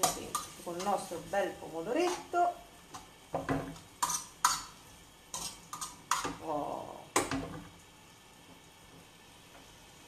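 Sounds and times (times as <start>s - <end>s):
fork scraping frying pan: 0.0s - 1.1s, 2.0s - 6.4s.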